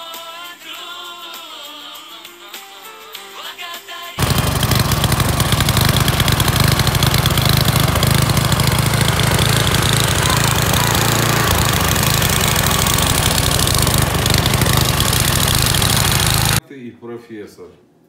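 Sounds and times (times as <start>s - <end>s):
small engine putter: 4.2s - 16.6s.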